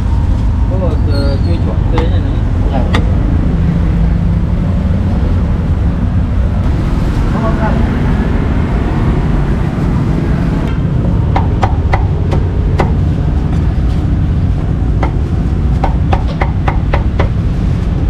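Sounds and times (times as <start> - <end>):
street background rumble: 0.0 - 18.0
cleaver chopping on wooden block: 11.4 - 13.0, 15.8 - 17.4.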